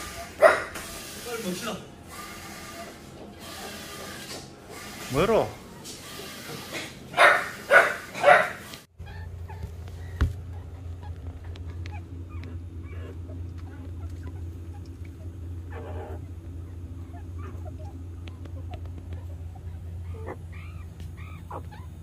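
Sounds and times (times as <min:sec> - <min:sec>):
small dog barking: 0:00.1 - 0:00.8, 0:07.1 - 0:09.6, 0:19.2 - 0:22.0
low hum: 0:08.9 - 0:22.0.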